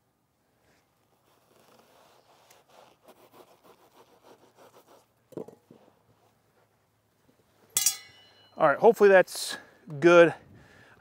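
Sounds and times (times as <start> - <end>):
knife sawing insulation board: 1.3 - 5.1.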